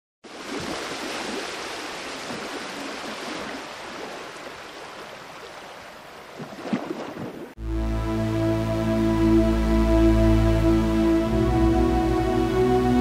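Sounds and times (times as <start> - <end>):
running water rushing: 0.2 - 7.6.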